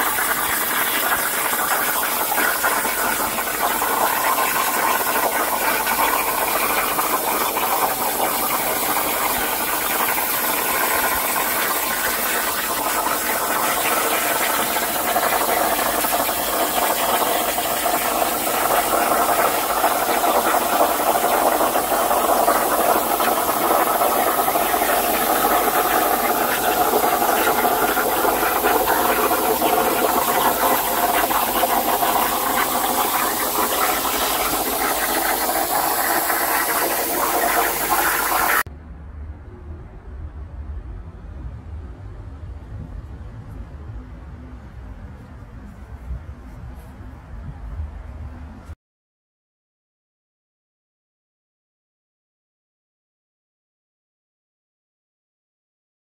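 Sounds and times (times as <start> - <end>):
plasma cutter hissing: 0.0 - 38.6.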